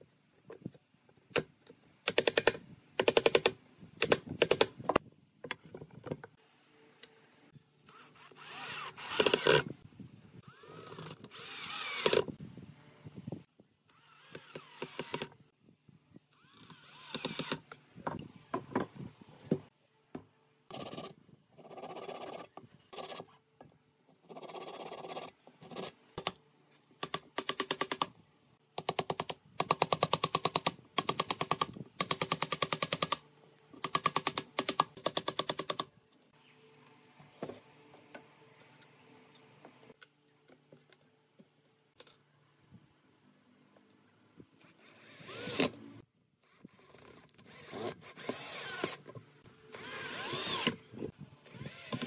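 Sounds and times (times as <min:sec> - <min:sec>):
cordless drill driving screws: 0:07.9 - 0:09.7, 0:10.5 - 0:12.3, 0:13.9 - 0:15.4, 0:16.4 - 0:17.6, 0:44.8 - 0:45.8, 0:46.7 - 0:49.1, 0:49.7 - 0:50.8, 0:51.4 - 0:52.0.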